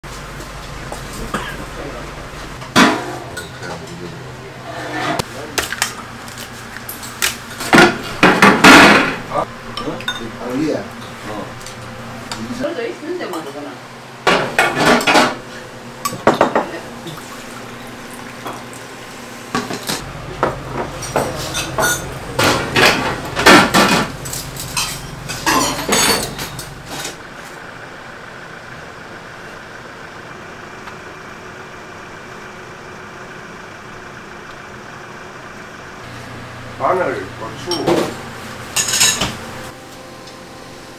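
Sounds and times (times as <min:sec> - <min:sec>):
steady low hum: 0:00.1 - 0:40.9
bowls clattering: 0:20.8 - 0:26.8.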